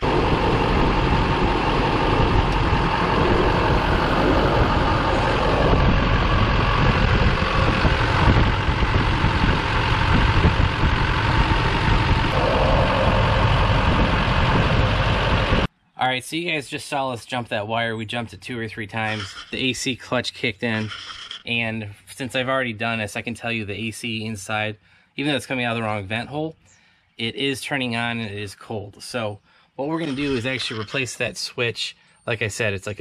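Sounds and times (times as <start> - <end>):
diesel engine idling: 0.0 - 15.7.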